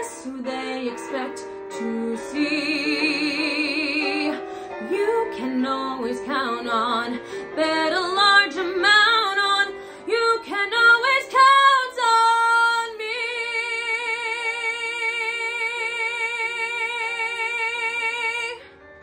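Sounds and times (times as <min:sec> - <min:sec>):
woman singing: 0:00.0 - 0:18.6.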